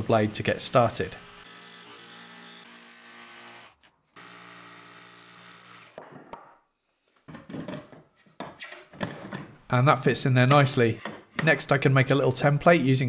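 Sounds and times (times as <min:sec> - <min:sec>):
jigsaw buzzing: 0:00.0 - 0:06.0.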